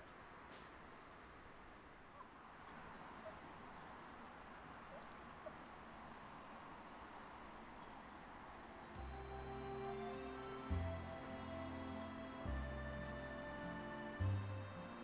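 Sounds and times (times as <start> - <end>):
faint outdoor hiss: 0.0 - 15.0.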